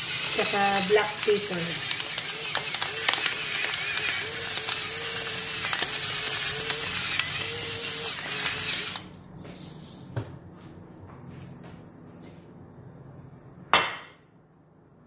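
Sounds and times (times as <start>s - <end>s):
pepper mill grinding: 0.0s - 10.0s.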